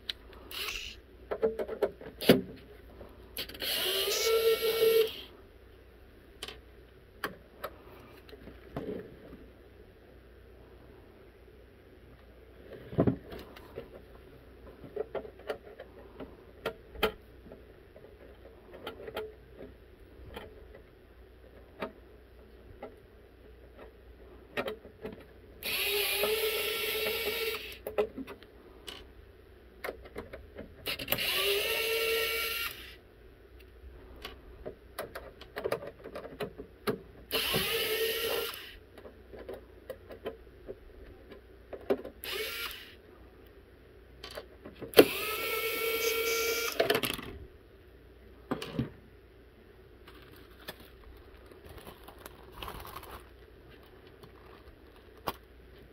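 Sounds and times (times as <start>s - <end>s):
power screwdriver motor spinning: 0.5s - 1.0s, 3.4s - 5.3s, 25.6s - 27.8s, 30.9s - 33.0s, 37.3s - 38.8s, 42.2s - 43.0s, 45.0s - 46.9s.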